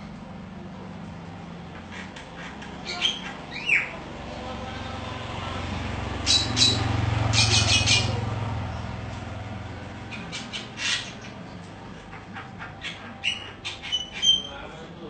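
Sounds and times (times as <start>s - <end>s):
bird chip calls: 1.7s - 4.0s, 6.2s - 8.2s, 9.9s - 14.6s.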